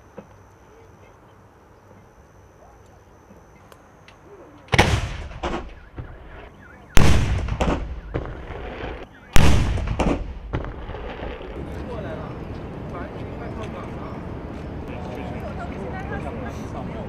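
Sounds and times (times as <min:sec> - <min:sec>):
field gun firing with echo: 0:04.7 - 0:11.6.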